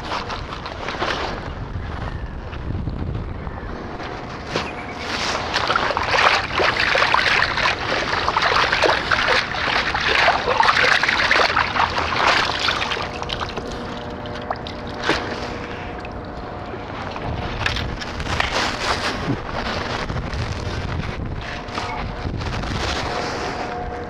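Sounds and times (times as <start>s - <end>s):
water trickling: 5.5s - 15.0s.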